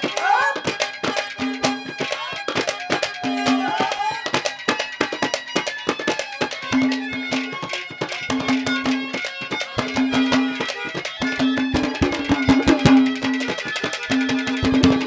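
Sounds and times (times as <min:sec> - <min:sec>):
fast hand drum strokes: 0:09.8 - 0:15.0.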